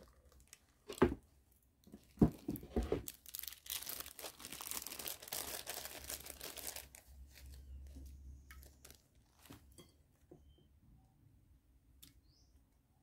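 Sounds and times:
plastic crinkling rustle: 0.0 - 1.0, 1.8 - 9.7.

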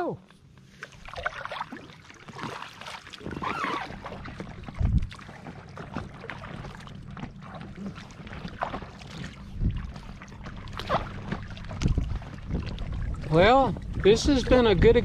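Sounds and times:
water lapping at hull: 0.0 - 15.0
paddles splashing in water: 0.6 - 15.0
low rumble: 3.9 - 15.0.

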